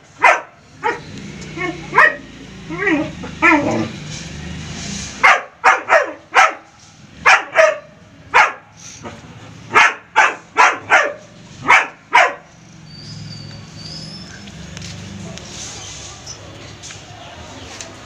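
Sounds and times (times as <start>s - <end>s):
dog barking: 0.1s - 3.9s, 5.2s - 12.5s.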